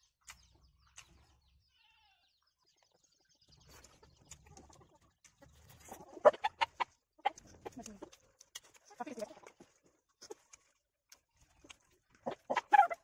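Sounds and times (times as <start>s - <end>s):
chicken clucking: 2.6s - 10.7s, 11.4s - 13.0s.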